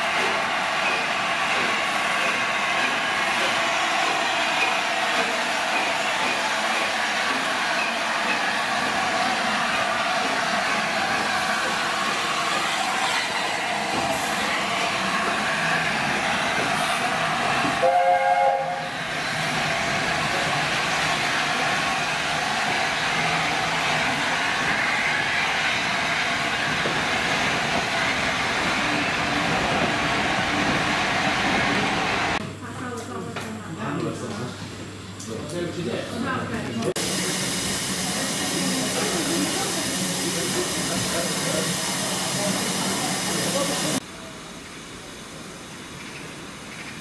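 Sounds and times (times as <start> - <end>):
steam hissing: 0.0 - 32.4, 37.0 - 44.0
train running noise: 0.0 - 32.5, 36.2 - 47.0
steam locomotive chime whistle: 17.8 - 19.0.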